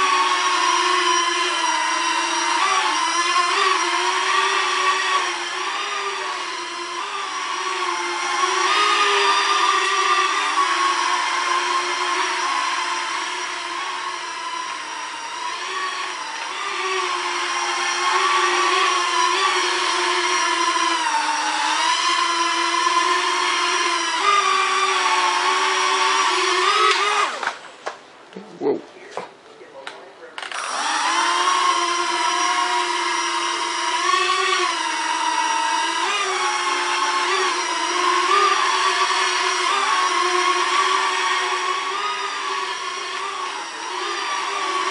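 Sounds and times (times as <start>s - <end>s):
toy drone motors whining: 0.0s - 27.6s, 30.4s - 44.9s.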